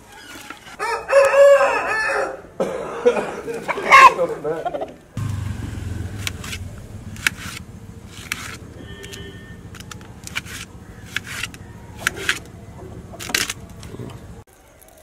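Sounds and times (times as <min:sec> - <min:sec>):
low rumble: 0:05.2 - 0:08.6.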